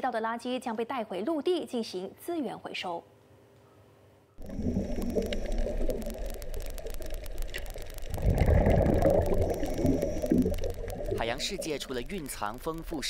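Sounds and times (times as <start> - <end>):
dense crackle of small clicks: 4.4 - 13.0
underwater wash of water: 4.4 - 13.0.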